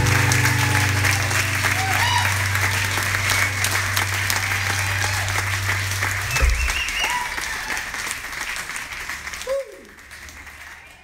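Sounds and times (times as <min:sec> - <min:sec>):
low steady hum: 0:00.0 - 0:09.0
audience applauding and cheering: 0:00.0 - 0:11.0
whoops: 0:00.1 - 0:08.2, 0:09.4 - 0:10.0
short low thump: 0:06.2 - 0:07.1.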